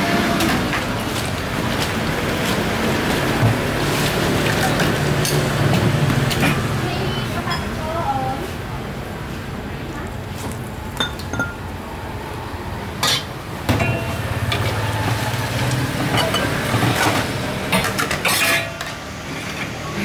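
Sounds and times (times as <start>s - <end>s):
spoons clinking against steel bowls: 11.0s - 11.6s, 13.0s - 14.7s, 16.1s - 17.1s, 17.7s - 19.0s.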